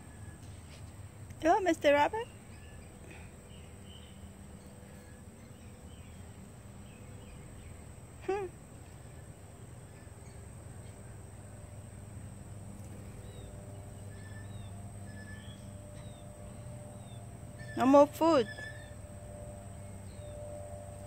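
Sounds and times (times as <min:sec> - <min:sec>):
steady low hum: 0:00.0 - 0:21.0
faint bird chirps: 0:12.8 - 0:20.7.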